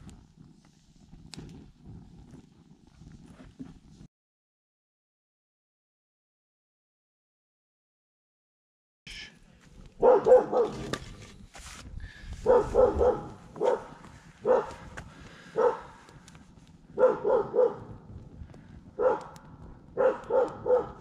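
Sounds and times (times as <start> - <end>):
dog barking: 10.0 - 10.9, 12.4 - 14.8, 15.5 - 16.0, 17.0 - 17.9, 19.0 - 19.4, 20.0 - 21.0.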